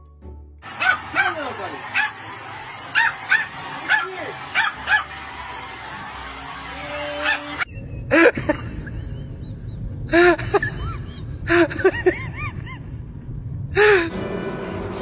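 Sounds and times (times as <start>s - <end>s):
animal calling: 0.6s - 5.8s
low rumbling background: 7.7s - 14.1s.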